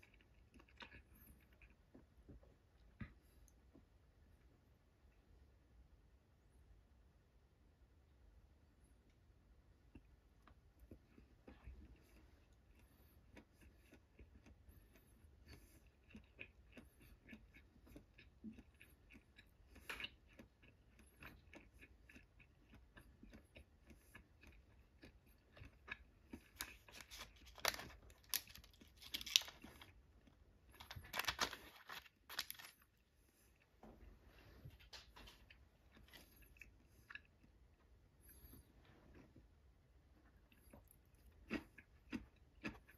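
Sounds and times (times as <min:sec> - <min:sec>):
person chewing food: 0:00.0 - 0:05.3, 0:09.6 - 0:42.9
plastic film crinkling: 0:26.7 - 0:29.9, 0:30.8 - 0:33.0.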